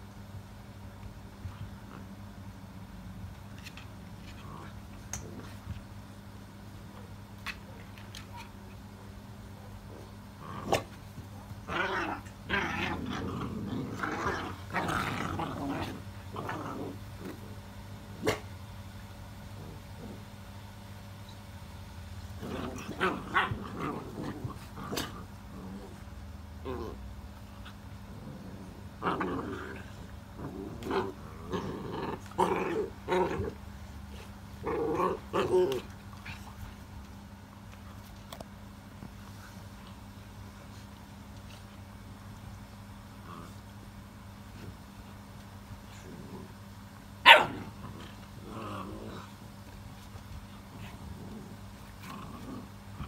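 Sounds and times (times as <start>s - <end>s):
puppies growling: 2.9s - 5.8s, 9.9s - 18.4s, 19.3s - 20.6s, 22.2s - 36.8s, 43.0s - 45.1s, 45.8s - 53.0s.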